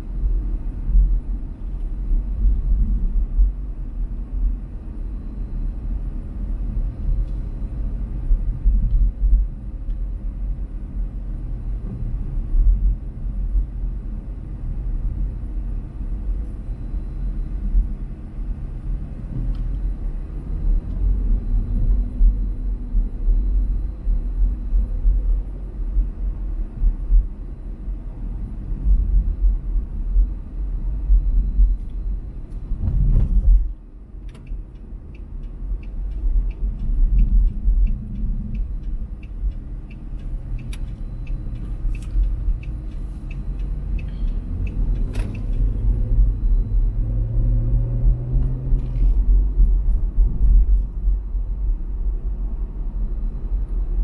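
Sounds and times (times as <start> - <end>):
car engine and tyre rumble: 0.0 - 54.0
turn signal ticking: 28.6 - 51.2.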